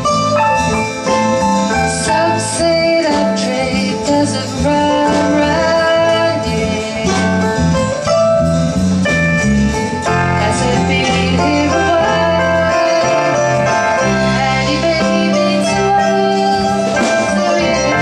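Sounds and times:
plucked string instrument: 0.0s - 18.0s
woman singing: 2.0s - 7.6s, 10.1s - 18.0s.

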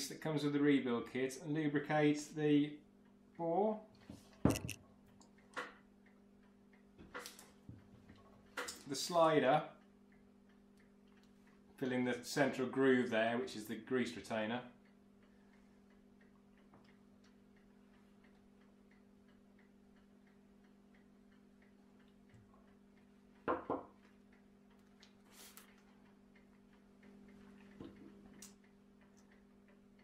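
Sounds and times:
knock of metal parts: 4.5s - 4.8s
faint ticking: 14.6s - 30.0s.

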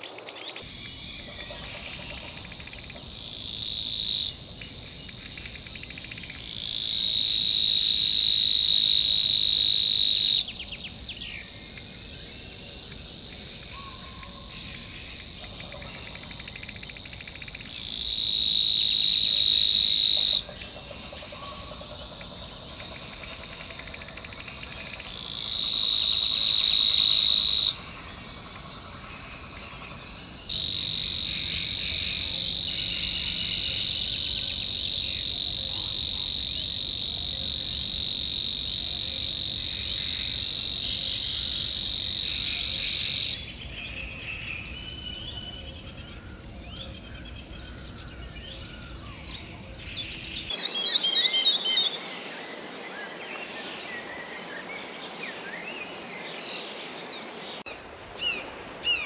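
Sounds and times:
small songbirds chirping: 10.4s - 18.2s, 43.3s - 59.0s.

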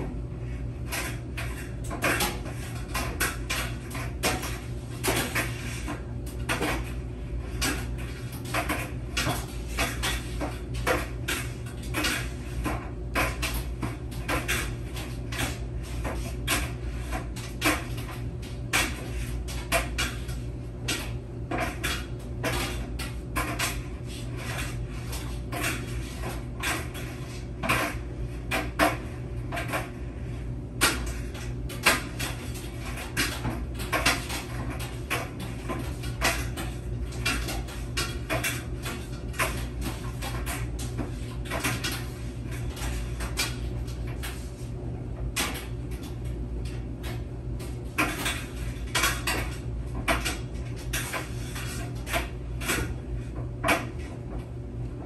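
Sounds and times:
washing machine motor hum: 0.0s - 55.0s
objects clattering in drum: 45.2s - 54.3s.

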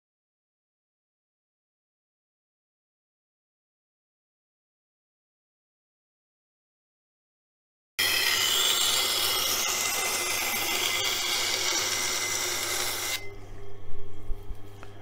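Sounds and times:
grinder motor hum: 8.0s - 13.4s
knife grinding on wheel: 8.0s - 13.4s.

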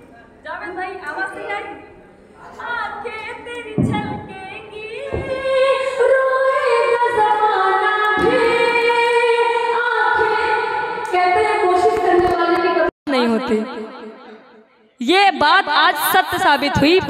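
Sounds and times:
low thumps: 3.7s - 5.7s.

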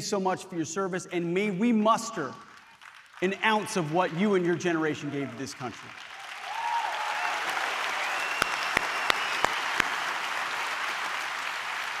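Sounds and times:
audience applauding: 2.5s - 12.0s
sharp loud claps: 5.7s - 12.0s.

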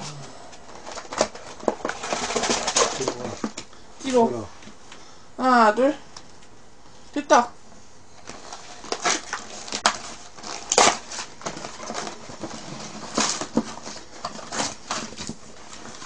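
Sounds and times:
cardboard and paper crinkling: 0.6s - 3.6s, 8.2s - 16.0s.

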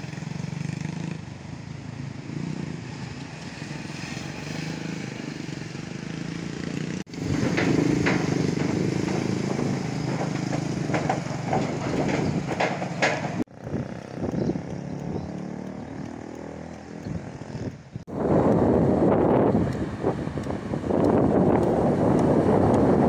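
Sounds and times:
motorcycle engine running: 0.0s - 2.8s, 5.0s - 23.0s
flowing floodwater: 0.6s - 11.3s, 18.1s - 23.0s
wind rushing: 17.0s - 23.0s.

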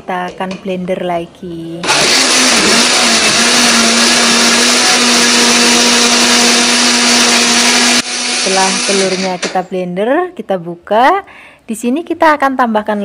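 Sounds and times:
blender running: 1.8s - 9.6s.

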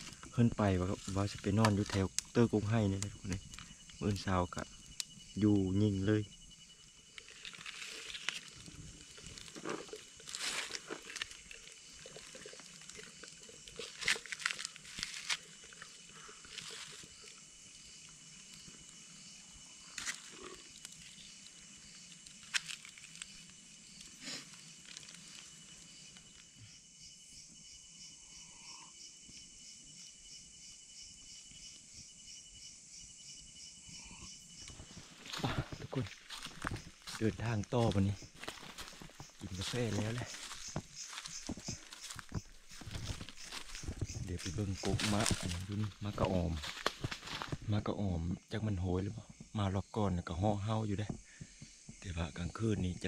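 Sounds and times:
rustles and crunches: 0.0s - 5.5s, 6.8s - 17.4s, 19.8s - 26.5s, 34.6s - 47.7s
fast pulsing insect chirp: 0.0s - 53.0s
insects buzzing high-pitched: 0.0s - 53.0s.

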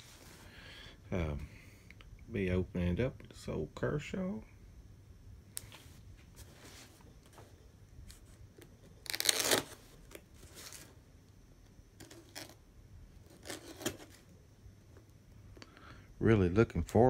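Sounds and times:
tape tearing: 9.0s - 10.8s, 12.0s - 12.6s, 13.2s - 14.2s.

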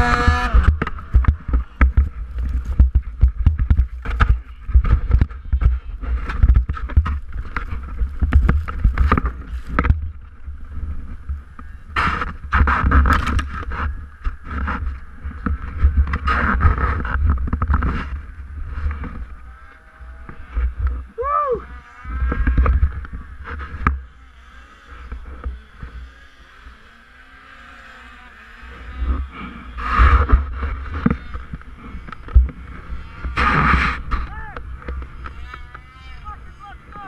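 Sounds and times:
low thumps on microphone: 0.0s - 19.3s
rough rustling on microphone: 0.0s - 19.5s
snowmobile engine cutting off: 0.0s - 37.0s.

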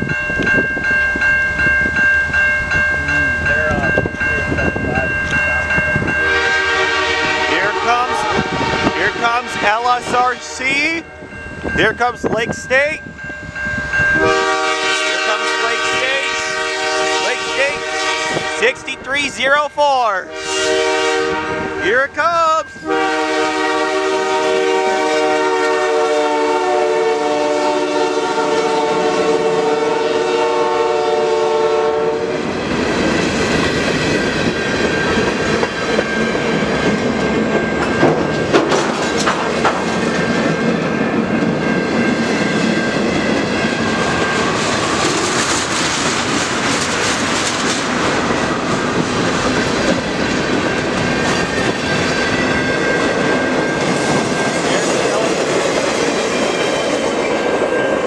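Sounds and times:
locomotive horn: 6.2s - 10.9s, 14.2s - 19.0s, 20.2s - 22.0s, 22.8s - 32.4s
freight cars rumbling: 32.4s - 58.0s
wheels clicking over rail joints: 36.9s - 40.6s.

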